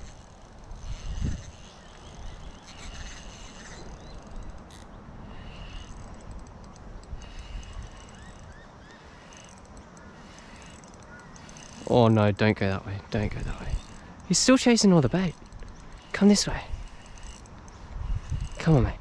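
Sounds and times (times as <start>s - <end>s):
wind rumbling on microphone: 0.0s - 8.8s, 15.0s - 19.0s.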